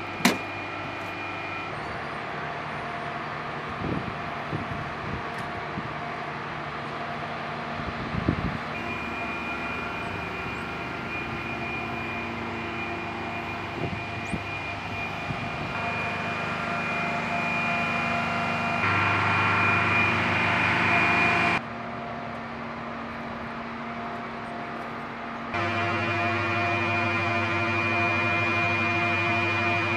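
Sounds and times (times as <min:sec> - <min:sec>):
aircraft turbine engines whining: 0:00.0 - 0:29.9.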